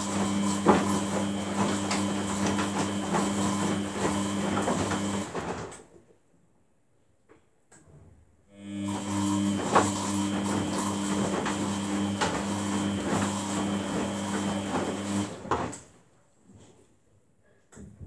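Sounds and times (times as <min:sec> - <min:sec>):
washing machine motor hum: 0:00.0 - 0:05.8, 0:08.6 - 0:16.0.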